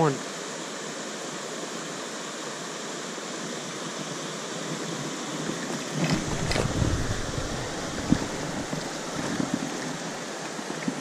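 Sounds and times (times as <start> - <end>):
stream rushing over rocks: 0.1 - 11.0
low rumble: 6.2 - 9.2.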